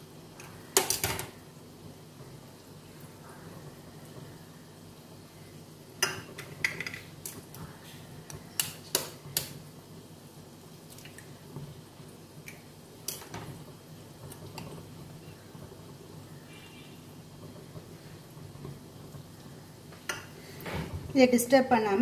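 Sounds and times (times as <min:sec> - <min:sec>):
faint low hum: 0:00.0 - 0:06.3.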